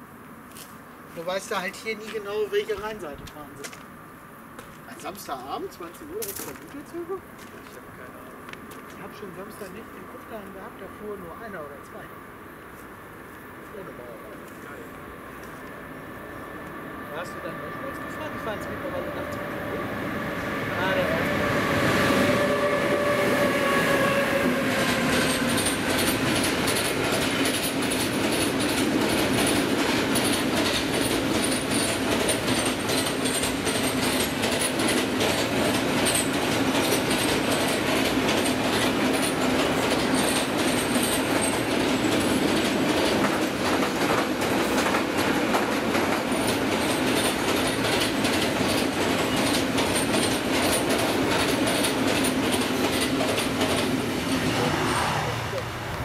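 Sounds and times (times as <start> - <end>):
freight train rumble: 13.0 - 56.0
high wheel squeal: 17.1 - 26.2
wheels clacking over rail joints: 24.1 - 54.6.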